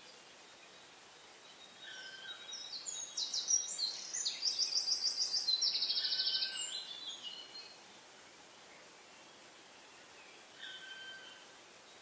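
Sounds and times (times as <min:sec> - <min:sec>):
songbird singing trills: 0:00.0 - 0:07.8.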